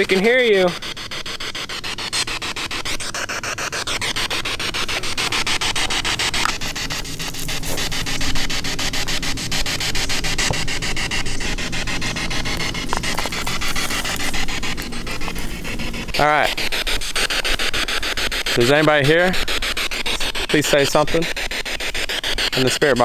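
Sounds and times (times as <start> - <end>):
chopped radio static: 0.0 - 23.0.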